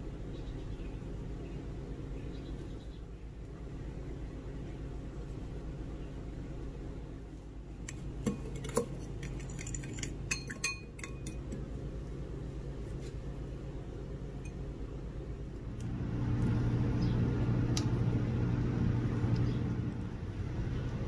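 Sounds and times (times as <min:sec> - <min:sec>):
steady low hum: 0:00.0 - 0:21.0
kitchenware clinking: 0:08.3 - 0:11.5.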